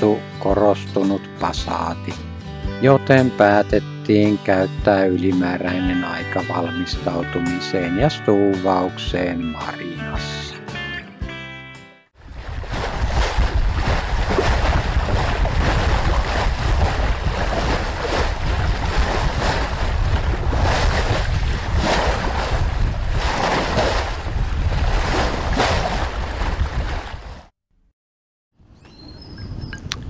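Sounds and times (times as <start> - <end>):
waves rushing: 12.2 - 27.2
wind buffeting the microphone: 12.2 - 27.3, 29.0 - 30.0.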